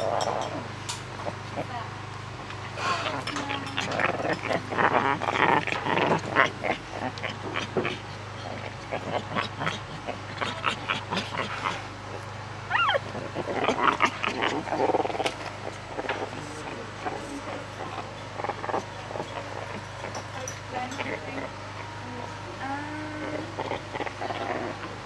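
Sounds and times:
monkey vocal noises: 0:02.7 - 0:22.0, 0:22.6 - 0:25.0.

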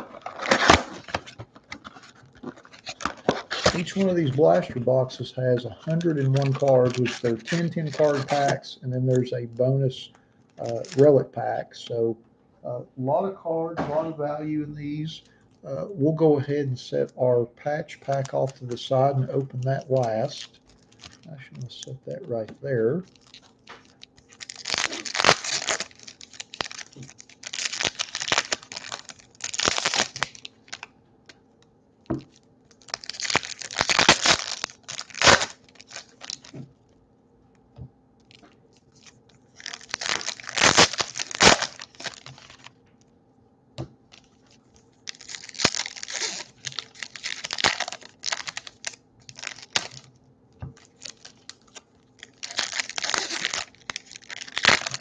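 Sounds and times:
foil wrapper tearing and crinkling: 0:00.0 - 0:05.0, 0:05.8 - 0:08.6, 0:10.6 - 0:11.2, 0:18.0 - 0:21.3, 0:22.3 - 0:30.9, 0:32.1 - 0:36.6, 0:38.3 - 0:42.7, 0:44.1 - 0:50.2, 0:50.8 - 0:55.0.

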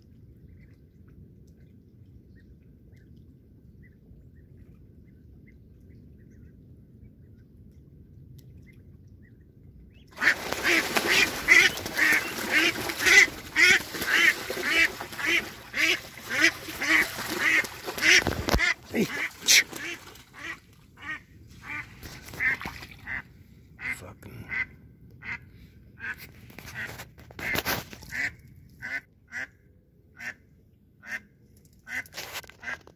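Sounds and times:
water splashing: 0:10.2 - 0:20.8, 0:21.6 - 0:23.2
duck quacking: 0:10.2 - 0:23.2, 0:23.8 - 0:25.4, 0:26.0 - 0:29.5.

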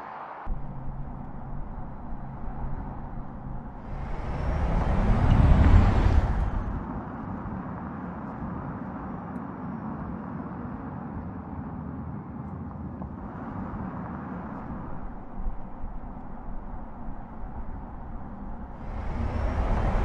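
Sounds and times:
tyre-on-road noise: 0:00.0 - 0:20.0
low electric car hum: 0:00.5 - 0:07.3, 0:13.1 - 0:20.0.

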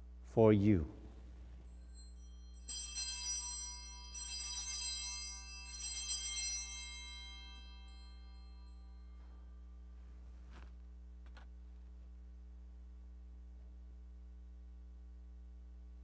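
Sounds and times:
steady low hum: 0:00.0 - 0:16.0
altar bells jingling: 0:01.4 - 0:09.9.

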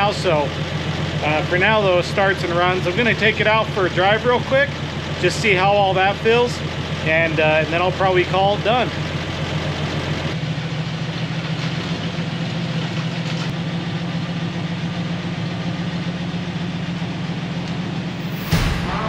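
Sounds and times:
car engine running at low speed: 0:00.0 - 0:19.0.

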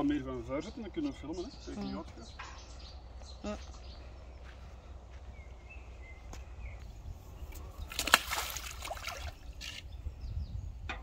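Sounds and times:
fish thrashing in water: 0:07.6 - 0:09.8
fish splashing into water: 0:07.8 - 0:09.8.

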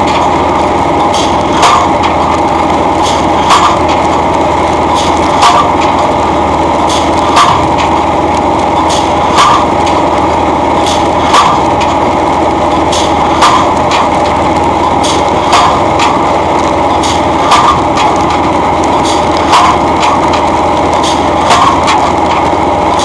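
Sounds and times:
steady machine noise: 0:00.0 - 0:23.0
pile-driving hammer striking wooden pole: 0:05.0 - 0:06.0, 0:06.9 - 0:08.0, 0:08.9 - 0:10.0, 0:10.8 - 0:12.0, 0:15.0 - 0:16.2, 0:17.0 - 0:20.4, 0:21.0 - 0:22.4.

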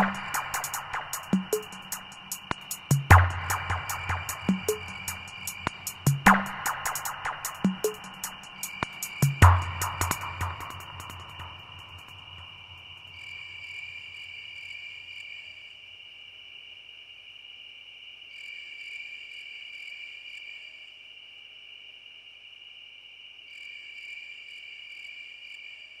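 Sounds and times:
insects droning: 0:00.0 - 0:26.0.

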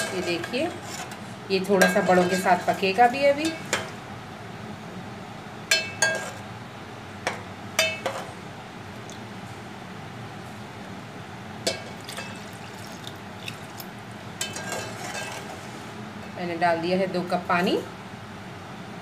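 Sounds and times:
spoon clinking against pot: 0:07.8 - 0:08.2.

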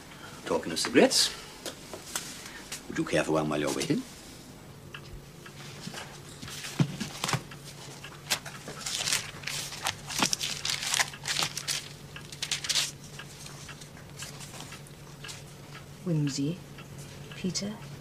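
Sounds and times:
soft knocks of book handling: 0:05.8 - 0:10.8
book pages turning: 0:06.5 - 0:14.8.

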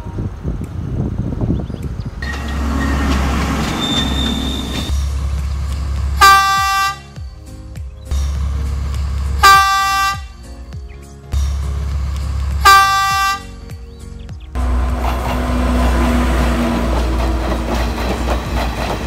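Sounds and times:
train passing with rumble: 0:00.0 - 0:07.5, 0:08.1 - 0:10.2, 0:11.4 - 0:19.0
train horn blasts: 0:02.2 - 0:04.9, 0:06.2 - 0:07.2, 0:09.4 - 0:10.3, 0:12.6 - 0:13.6, 0:14.6 - 0:16.9.

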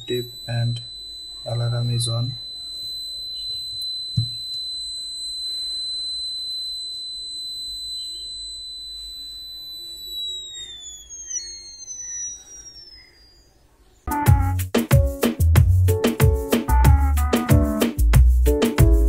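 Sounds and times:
electronic buzzer high-pitched tone: 0:00.0 - 0:14.6.

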